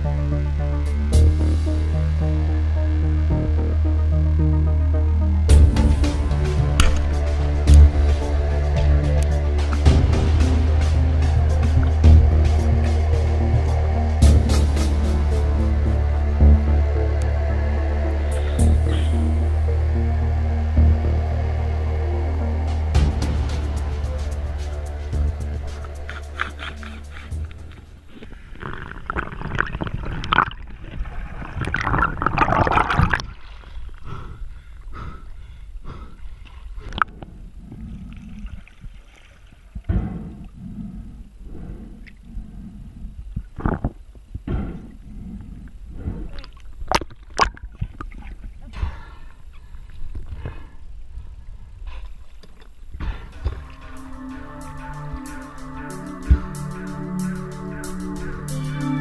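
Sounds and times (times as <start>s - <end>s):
dark electronic music: 0.0s - 28.2s, 53.0s - 59.0s
heavy low hit: 5.5s - 26.4s, 53.0s - 59.0s
underwater water rushing: 22.8s - 34.0s.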